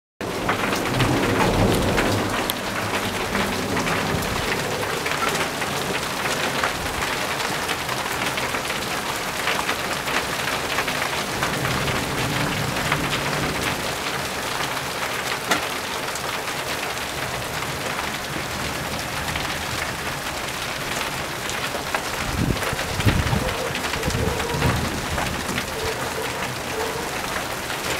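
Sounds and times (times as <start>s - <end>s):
low rumble of thunder: 0.2s - 7.3s, 11.1s - 14.4s, 17.4s - 27.5s
raindrops hitting surfaces: 0.2s - 27.9s
steady rain falling: 0.2s - 27.9s.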